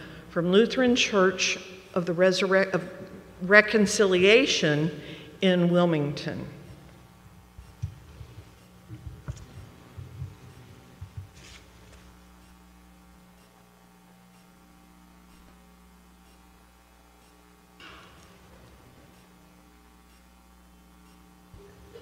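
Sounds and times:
electrical mains hum: 0:00.0 - 0:22.0
short scuffing noise: 0:11.3 - 0:12.2.

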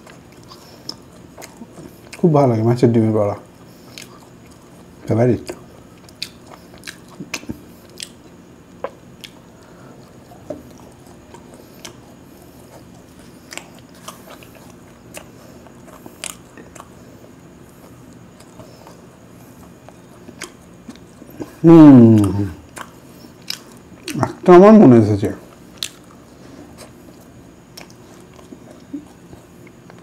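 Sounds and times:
chewing and biting fried food: 0:00.0 - 0:02.3, 0:03.4 - 0:24.4, 0:25.4 - 0:30.0
sharp mouth clicks and smacks: 0:25.7 - 0:26.1.

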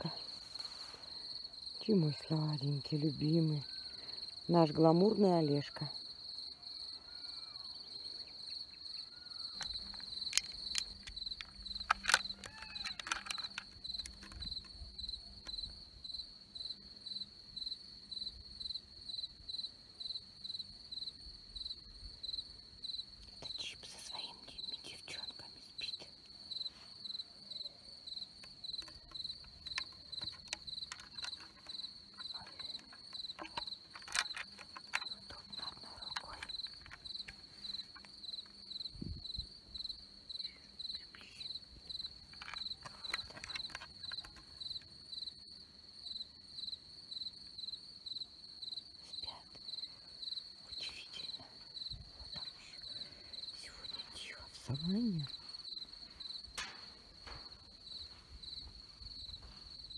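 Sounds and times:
rustles: 0:00.0 - 0:01.8, 0:09.4 - 0:15.7, 0:23.9 - 0:27.6, 0:28.2 - 0:40.0, 0:49.1 - 0:59.9
crickets chirping: 0:00.0 - 0:59.9.

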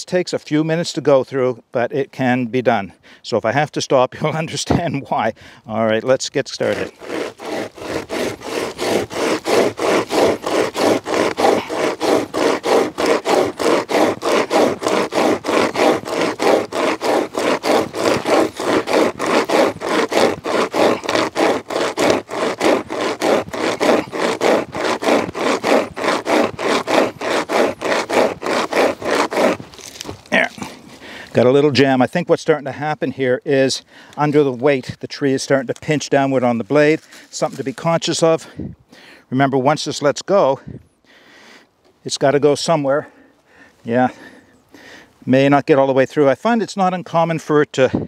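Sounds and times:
hand chainsaw rasping through log: 0:06.0 - 0:38.7, 0:43.9 - 0:45.1.

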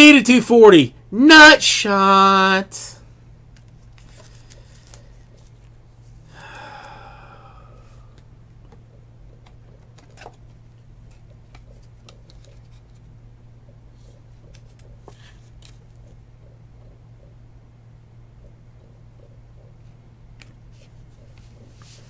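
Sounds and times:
low electrical hum: 0:00.0 - 0:22.0
trading card clicks and rustles: 0:03.5 - 0:05.8, 0:09.3 - 0:13.1, 0:14.0 - 0:16.2.

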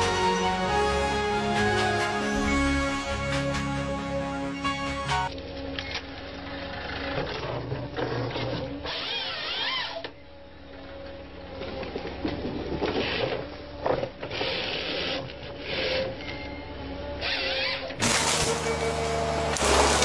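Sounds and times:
engine and hydraulics humming: 0:00.0 - 0:20.0
loud noisy bursts: 0:18.0 - 0:20.0.

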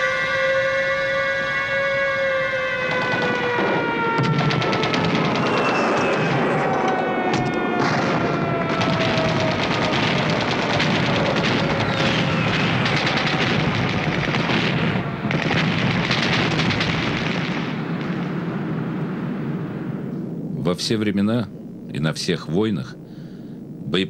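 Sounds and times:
continuous gunfire: 0:02.8 - 0:18.9
artillery fire: 0:02.8 - 0:20.0
falling whistles: 0:05.2 - 0:07.8, 0:11.6 - 0:15.1.

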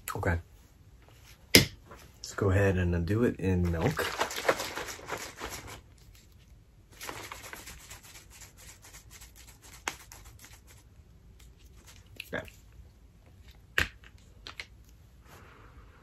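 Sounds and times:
plastic cup rustling: 0:03.5 - 0:10.7.

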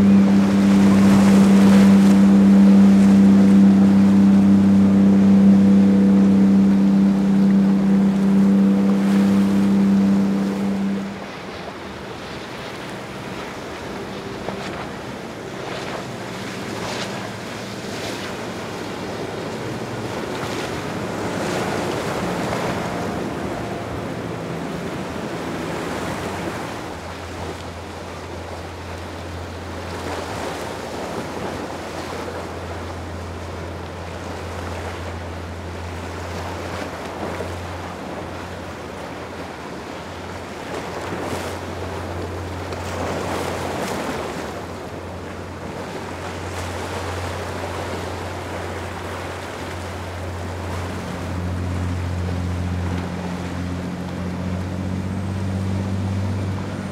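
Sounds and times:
water washing: 0:00.0 - 0:11.5
deep loud engine hum: 0:00.0 - 0:56.9
motorboat engine hum: 0:00.0 - 0:56.9.

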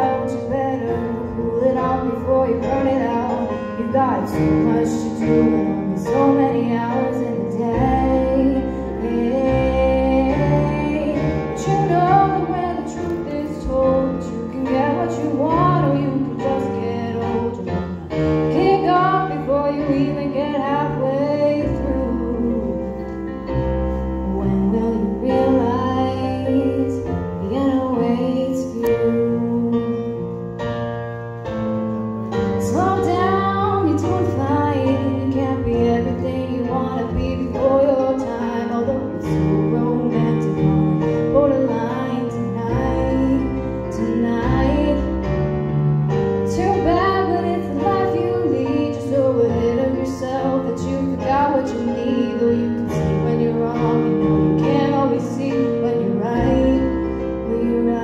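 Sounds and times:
woman singing into a microphone: 0:00.0 - 0:30.4, 0:32.5 - 0:45.5, 0:46.1 - 0:58.0.

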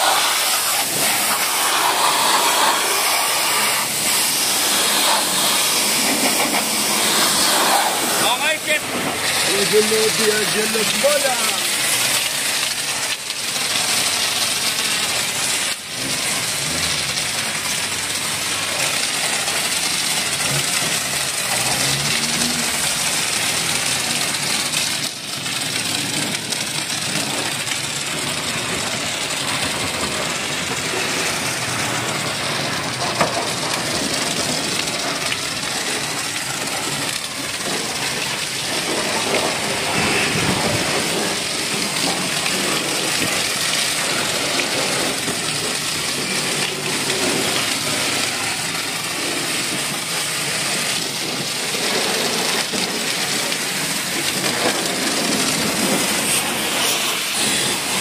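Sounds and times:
foam lance hissing spray: 0:00.0 - 0:24.7, 0:29.7 - 0:58.0
pressure washer pump running: 0:00.0 - 0:58.0.

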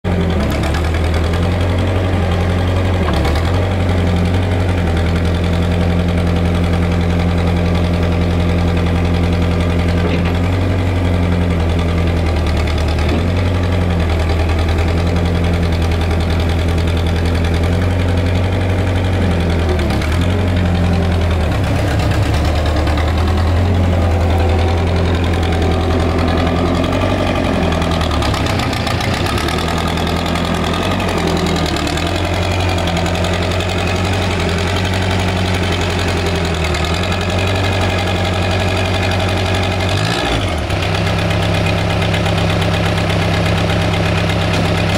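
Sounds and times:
skid steer engine running: 0:00.0 - 0:44.9.

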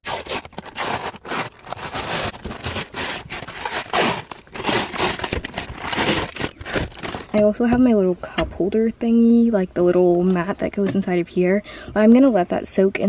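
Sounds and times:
plastic film crinkling and tearing: 0:00.0 - 0:07.4.

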